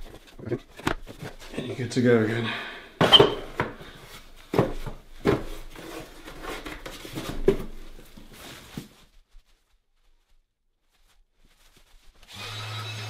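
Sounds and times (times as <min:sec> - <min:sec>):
plastic clunks and rustling: 0:00.0 - 0:01.5, 0:04.5 - 0:08.2.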